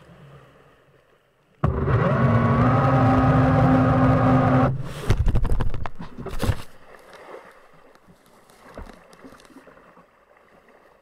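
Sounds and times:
kayak hull splashing and scraping: 3.2 - 11.0
faint knocks and rustling: 7.9 - 9.7.

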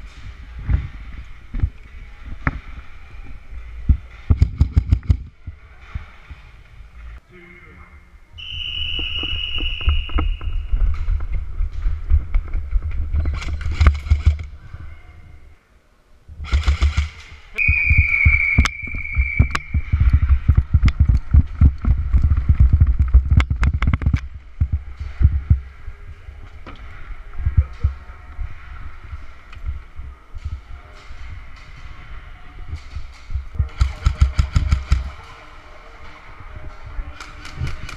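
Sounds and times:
airsoft guns firing: 16.4 - 17.3.

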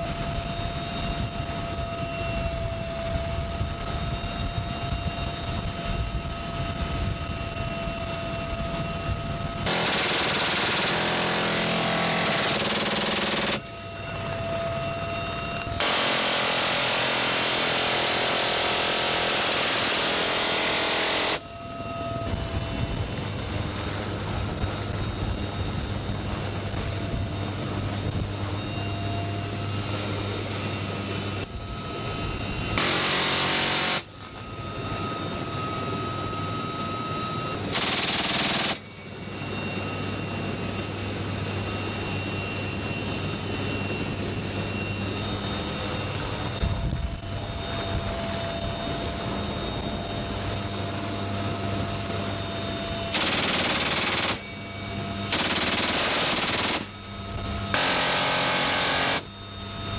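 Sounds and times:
helicopter engine and rotor drone: 0.0 - 59.9
machine gun bursts: 9.7 - 13.7, 15.8 - 21.4, 32.8 - 34.1, 37.7 - 38.8, 53.1 - 54.5, 55.3 - 57.0, 57.8 - 59.3.

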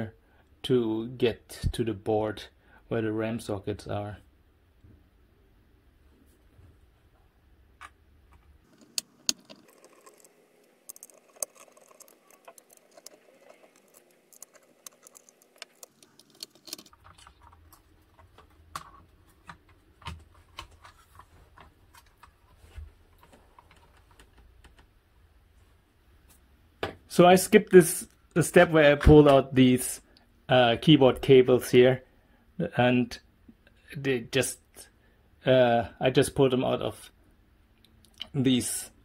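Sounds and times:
plastic case being handled: 7.8 - 24.5.

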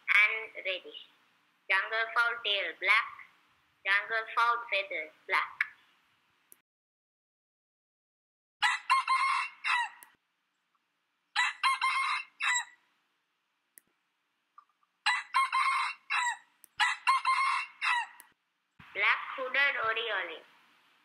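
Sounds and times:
junglefowl crowing: 8.6 - 10.0, 11.4 - 12.8, 15.0 - 18.3.

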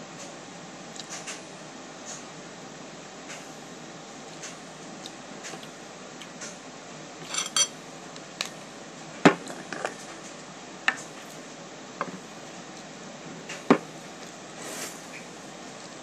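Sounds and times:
glass and cutlery tapping: 7.3 - 7.7.

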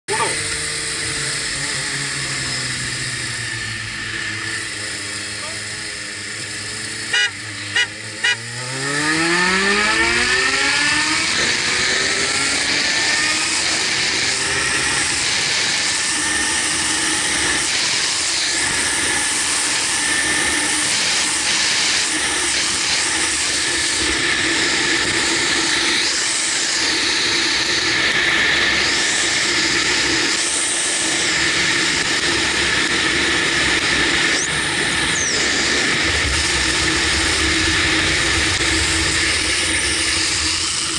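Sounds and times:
motorcycle engine blipping and accelerating: 0.1 - 40.9
wind rush on helmet microphone: 10.6 - 40.9.

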